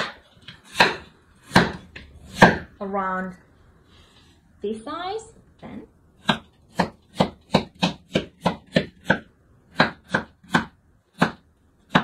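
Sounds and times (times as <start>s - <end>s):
knife chopping on cutting board: 0.0s - 2.7s, 6.2s - 12.0s.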